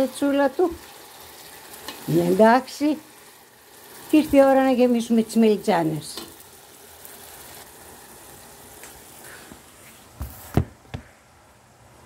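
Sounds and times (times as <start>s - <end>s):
sauce sizzling in pan: 0.0s - 9.4s.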